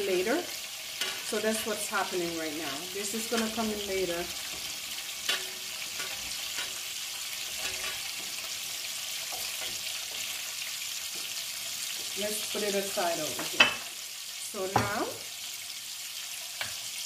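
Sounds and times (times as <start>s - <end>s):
oil sizzling in metal pot: 0.0s - 17.0s
spatula knocking and scraping pot: 4.4s - 10.4s.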